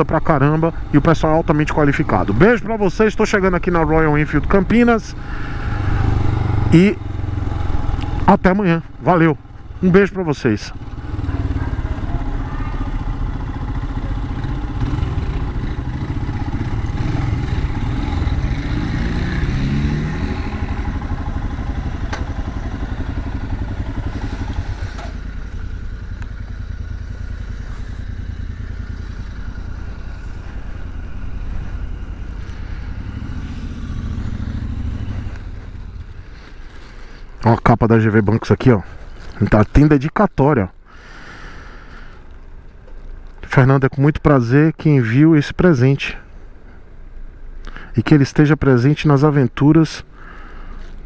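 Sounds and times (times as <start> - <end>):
motorcycle engine running: 0.0 - 37.4.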